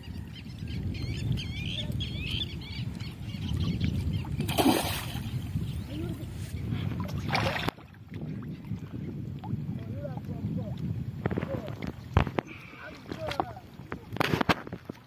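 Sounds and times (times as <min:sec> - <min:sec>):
low wind rumble: 0:00.0 - 0:15.0
fish splashing in water: 0:04.3 - 0:05.4.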